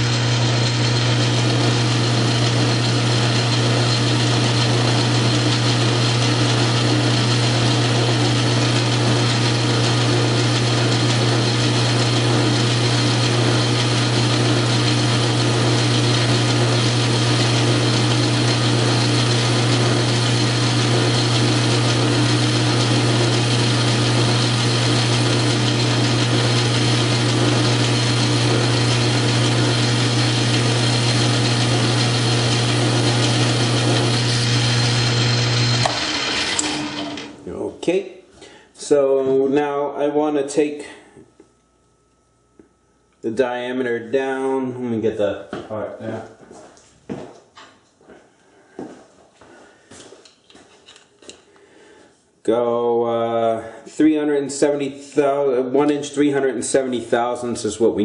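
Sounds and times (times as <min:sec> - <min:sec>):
lathe cutting metal: 0:00.0 - 0:37.4
metal lathe humming: 0:00.0 - 0:37.5.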